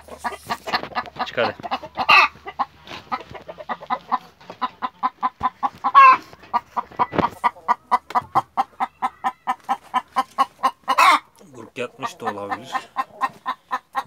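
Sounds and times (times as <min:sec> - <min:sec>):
hen clucking: 0:00.0 - 0:14.0
hen squawking: 0:05.8 - 0:14.0.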